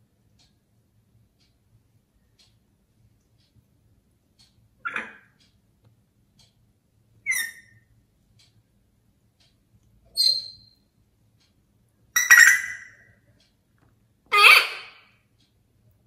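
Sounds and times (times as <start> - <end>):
parrot high-pitched calls: 4.8 - 5.3, 7.2 - 7.8, 10.1 - 10.8, 12.2 - 13.1, 14.3 - 15.1.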